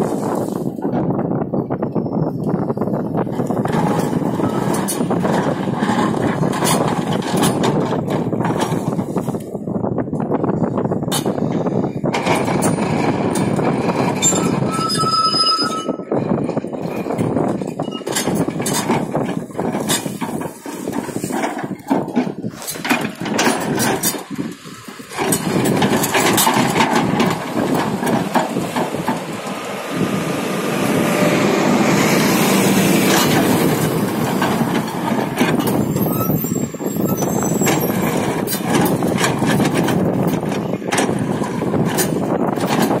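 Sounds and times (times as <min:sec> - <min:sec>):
bucket scraping road surface: 0:00.0 - 0:01.0, 0:03.2 - 0:09.6, 0:11.1 - 0:43.0
excavator diesel engine running: 0:02.4 - 0:09.7, 0:10.3 - 0:15.0, 0:16.4 - 0:43.0
asphalt chunks clattering: 0:17.1 - 0:29.6.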